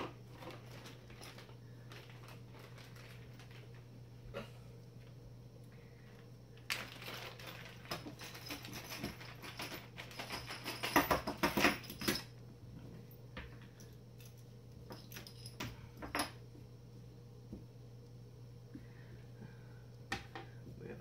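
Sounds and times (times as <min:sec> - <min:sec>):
plastic bag crinkling: 0:00.0 - 0:04.0, 0:06.6 - 0:10.6.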